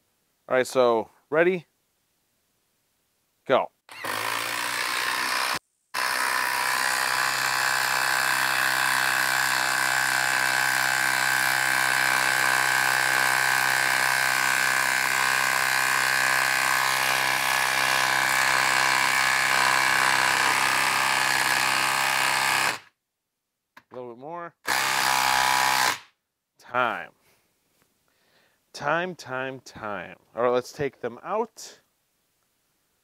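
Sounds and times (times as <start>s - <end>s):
impact driver hammering: 3.9s - 22.9s, 24.7s - 26.1s.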